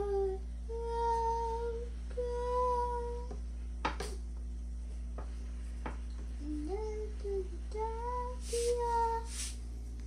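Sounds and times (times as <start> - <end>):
person humming held notes: 6.4 - 9.4.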